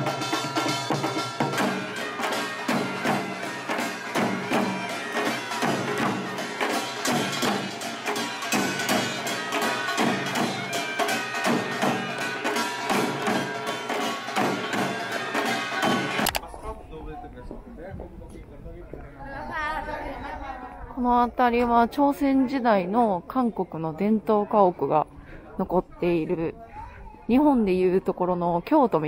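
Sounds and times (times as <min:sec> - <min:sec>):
drums and small gongs: 0:00.0 - 0:16.4.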